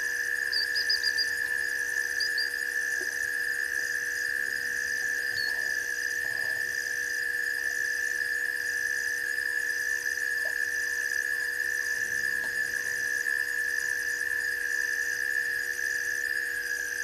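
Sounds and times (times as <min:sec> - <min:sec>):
low steady hum: 0:00.0 - 0:15.9
high-pitched insect ringing drone: 0:00.0 - 0:17.0
higher pulsing chirp: 0:00.4 - 0:02.6.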